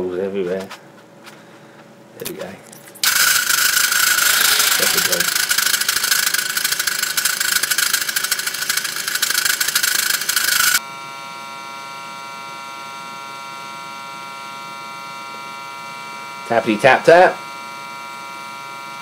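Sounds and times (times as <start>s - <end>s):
steady electrical hum: 0.0s - 12.3s
pillar drill cutting metal: 3.0s - 10.8s.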